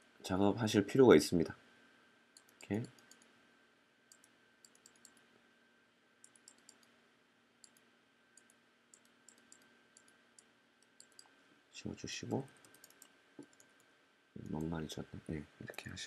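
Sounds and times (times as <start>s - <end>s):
faint high hum: 0.0s - 16.0s
computer mouse clicks: 2.4s - 3.3s, 4.1s - 5.2s, 6.2s - 7.0s, 7.6s - 11.4s, 12.3s - 14.7s.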